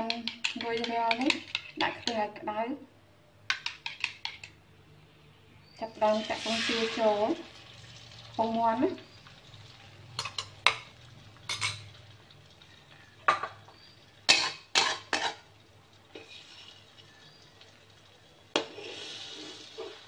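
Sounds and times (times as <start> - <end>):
spatula scraping pan: 6.1 - 7.3, 14.3 - 15.5, 16.1 - 16.9, 18.5 - 20.0.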